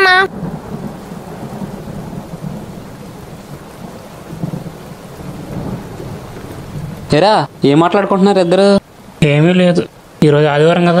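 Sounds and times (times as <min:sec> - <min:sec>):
thunder rumbling: 0:00.0 - 0:08.6
steady rain: 0:00.0 - 0:11.0.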